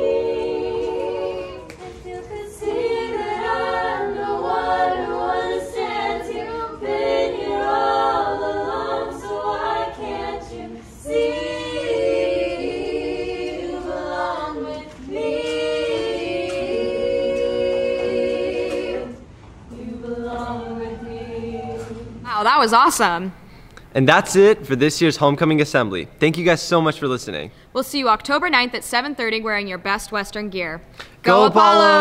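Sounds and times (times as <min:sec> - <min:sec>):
a cappella group singing: 0:00.0 - 0:22.3, 0:31.0 - 0:32.0.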